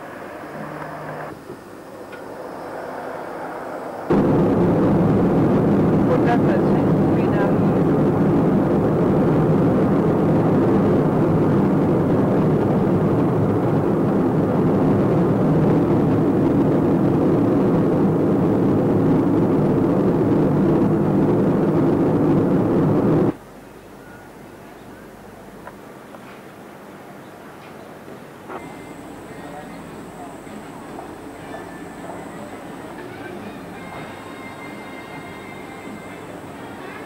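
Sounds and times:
car engine and road noise: 0.0s - 23.6s, 28.3s - 37.0s.

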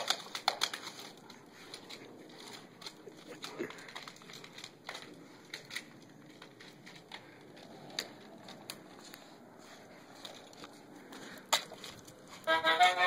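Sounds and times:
sharp clicks: 0.0s - 8.8s
scuffs on concrete: 0.3s - 13.0s.

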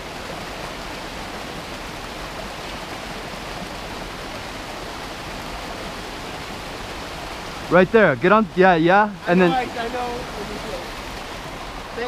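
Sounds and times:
creek water rushing over rocks: 0.0s - 12.0s.

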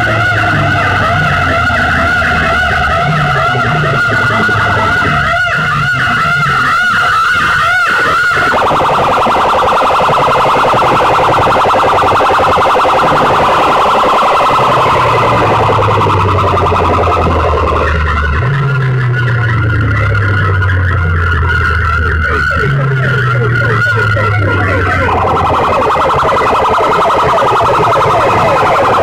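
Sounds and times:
electronic siren over loudspeakers: 0.0s - 29.0s
low droning tone: 8.5s - 29.0s.

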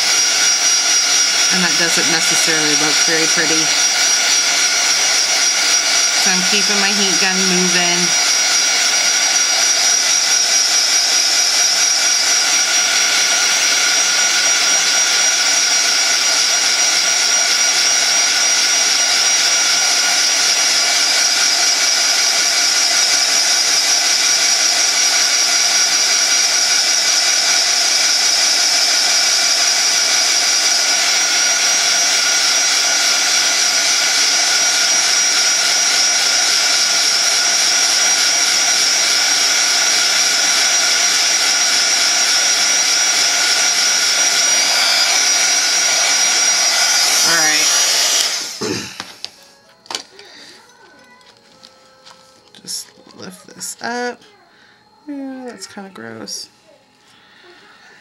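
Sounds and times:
heat gun running: 0.0s - 58.0s.

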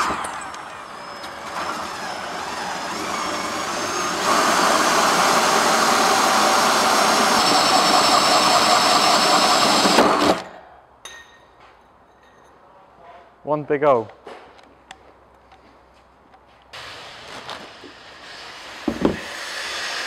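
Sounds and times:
hole saw grinding through metal: 0.0s - 10.4s.

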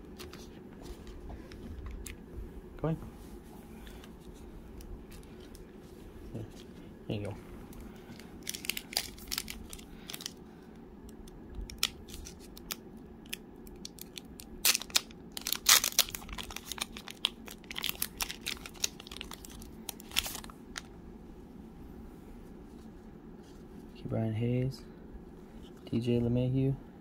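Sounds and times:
wrapper crinkling and tearing: 8.1s - 10.4s, 11.7s - 20.9s.

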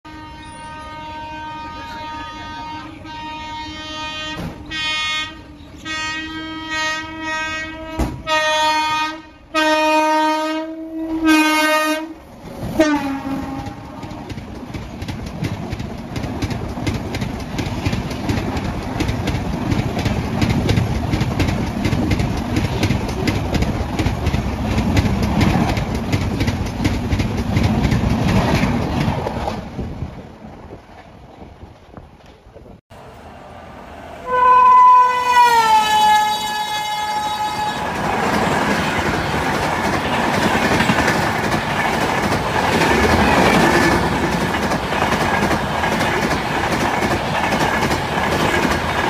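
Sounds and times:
train horn blasts: 0.0s - 14.3s, 34.1s - 38.0s
train coaches clattering past: 0.1s - 9.9s, 10.5s - 49.0s.

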